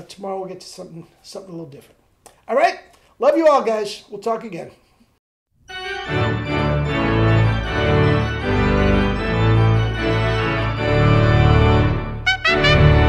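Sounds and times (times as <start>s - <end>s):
instrumental music with held chords: 5.6s - 13.0s
strong bass line: 6.9s - 13.0s.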